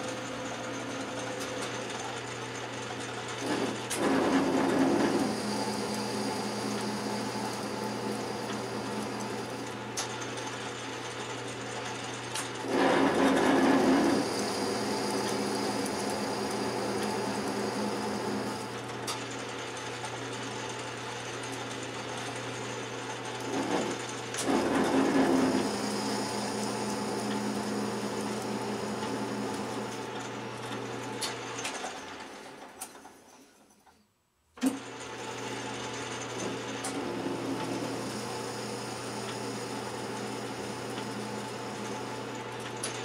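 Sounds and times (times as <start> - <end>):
metal lathe running: 3.2 - 10.0, 12.6 - 18.9, 23.3 - 31.0, 35.6 - 42.7.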